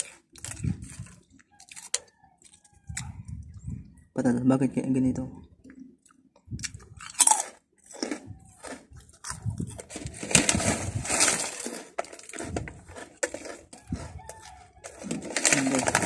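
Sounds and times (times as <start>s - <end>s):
plastic snack bag crinkling: 0.0s - 2.6s, 7.0s - 16.0s
chewing crunchy chips: 0.0s - 3.2s, 5.6s - 16.0s.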